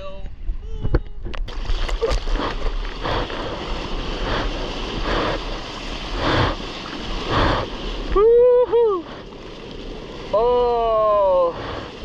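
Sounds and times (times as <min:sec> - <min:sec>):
sea water rushing and splashing: 0:01.5 - 0:12.0
person whooping: 0:08.1 - 0:09.1.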